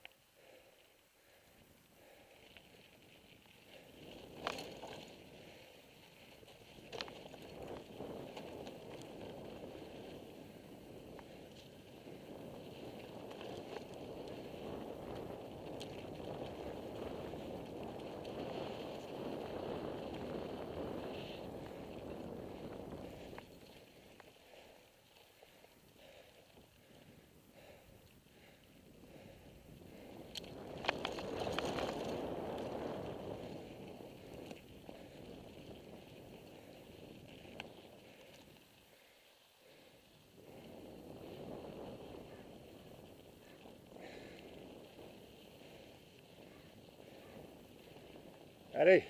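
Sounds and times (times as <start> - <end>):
bicycle tyres rolling on dirt: 0.0 - 49.0
wind rushing over camera: 2.0 - 39.1, 39.7 - 49.0
bike clicks and rattles: 2.2 - 27.2, 27.9 - 48.7
small clicks and rattles: 4.1 - 5.2, 30.2 - 32.8.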